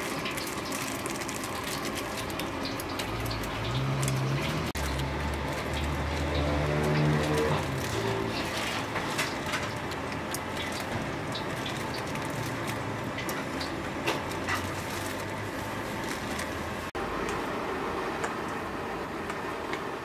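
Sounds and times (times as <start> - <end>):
wok sizzling and burner noise: 0.0 - 20.0
metal spatula scraping a pan: 6.3 - 9.8.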